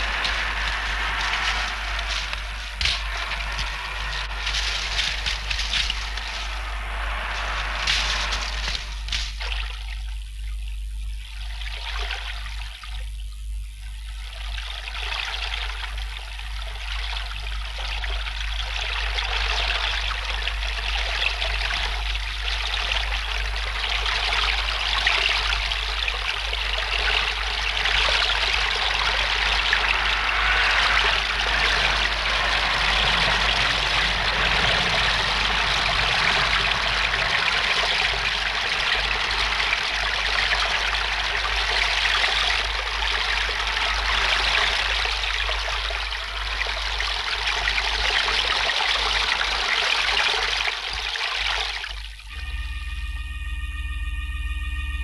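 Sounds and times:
river water rushing and splashing: 0.0 - 9.5, 23.5 - 51.8
steady low hum: 0.0 - 55.0.

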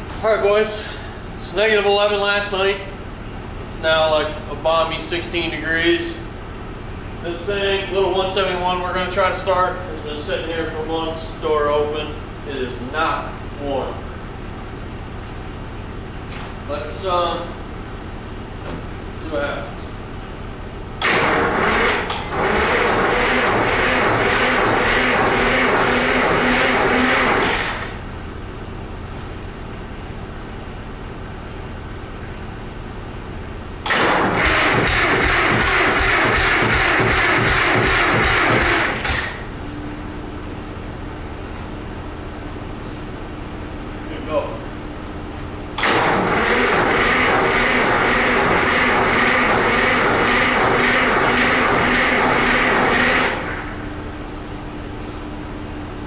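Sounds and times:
diesel engine running: 0.0 - 56.0
loud rapid regular beat: 34.2 - 39.1, 46.5 - 53.6.

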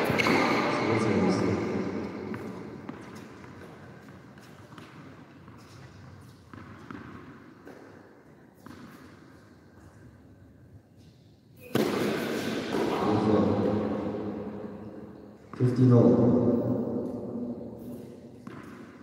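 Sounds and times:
tennis ball bouncing: 2.1 - 9.4, 11.6 - 12.9, 17.0 - 19.0.

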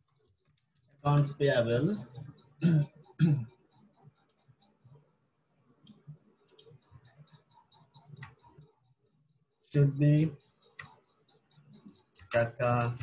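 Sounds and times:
man's voice: 1.1 - 2.0, 9.8 - 10.3, 12.3 - 13.0
mouse and keyboard clicking: 5.8 - 8.9, 10.2 - 13.0.

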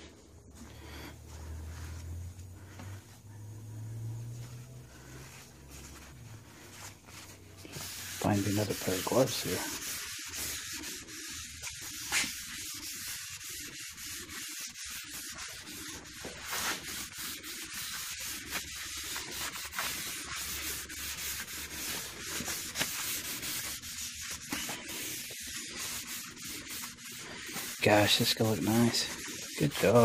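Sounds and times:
towel scrubbing wooden boards: 0.8 - 30.0.

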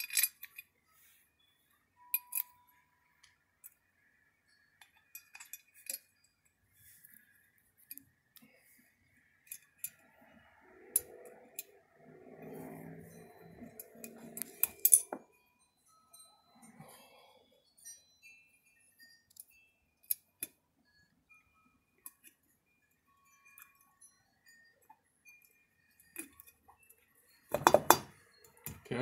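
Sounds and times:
metallic clicks of small parts: 0.0 - 0.7, 2.0 - 8.5, 9.2 - 11.8, 13.6 - 15.3, 19.0 - 21.0, 22.0 - 28.9.

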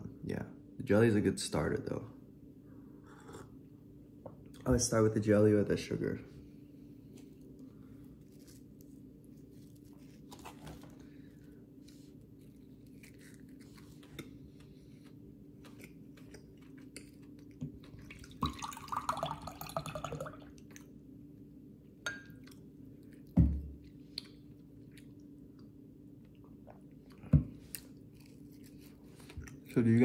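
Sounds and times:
person chewing: 12.1 - 18.3, 22.4 - 25.3, 26.3 - 29.8.

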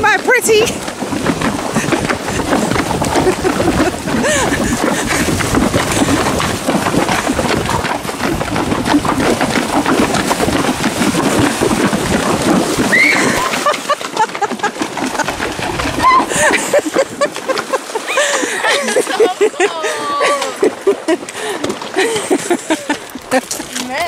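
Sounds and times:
horse hooves splashing in stream: 0.0 - 24.0.

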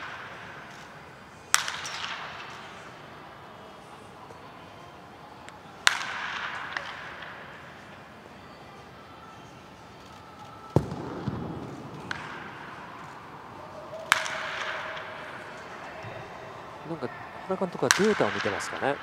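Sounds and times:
baseball bat hitting ball: 1.5 - 3.0, 5.8 - 7.4, 10.8 - 13.3, 14.0 - 15.8, 17.8 - 18.8.

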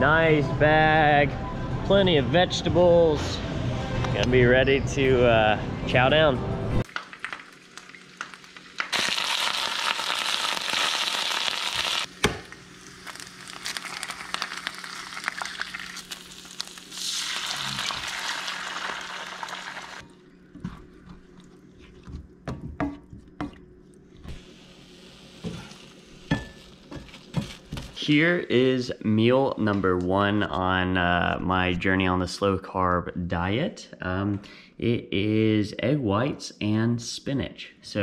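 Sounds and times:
food sizzling in frying pan: 6.8 - 20.0, 24.4 - 28.0.

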